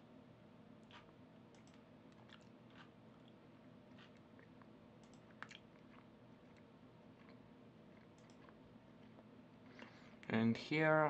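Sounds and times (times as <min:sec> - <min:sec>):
low steady hum: 0:00.0 - 0:11.0
computer mouse clicks: 0:00.8 - 0:02.5, 0:05.0 - 0:05.6, 0:08.2 - 0:08.6.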